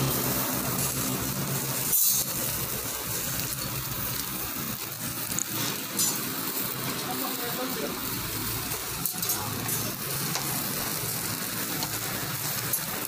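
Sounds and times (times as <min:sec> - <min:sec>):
grill hiss: 0:00.0 - 0:13.0
metal skewers clinking: 0:05.2 - 0:07.8, 0:08.7 - 0:11.0, 0:11.7 - 0:13.0.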